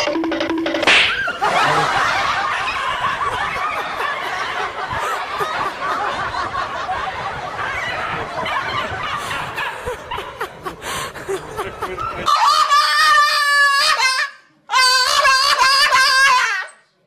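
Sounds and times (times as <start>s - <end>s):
people snickering and chuckling: 1.2s - 13.1s.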